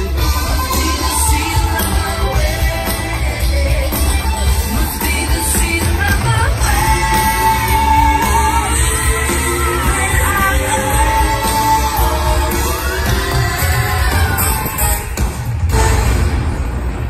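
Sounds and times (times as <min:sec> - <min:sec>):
person singing with vibrato: 0:00.0 - 0:16.0.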